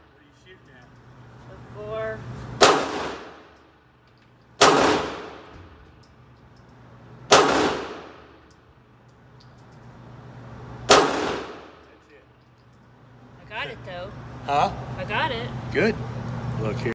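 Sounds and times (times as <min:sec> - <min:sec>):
pistol shots echoing: 0:02.6 - 0:03.4, 0:04.6 - 0:05.5, 0:07.3 - 0:08.2, 0:10.9 - 0:11.7.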